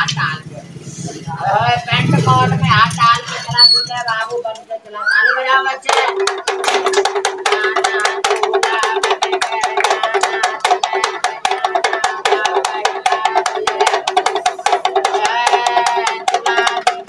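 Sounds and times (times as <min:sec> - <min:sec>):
music with clicking percussion beat: 0:05.8 - 0:17.0.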